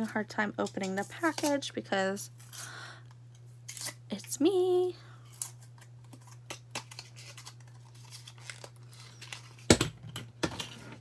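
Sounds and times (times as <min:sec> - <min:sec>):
wrapping crinkling and tearing: 0:05.2 - 0:09.7.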